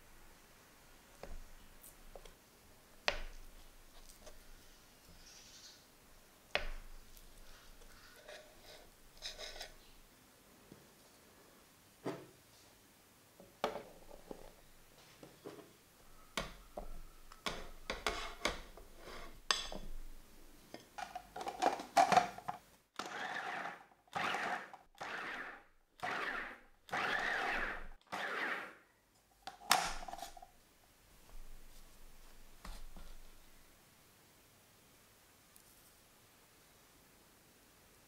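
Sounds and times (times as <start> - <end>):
food processor pulsing: 23.0 - 28.8.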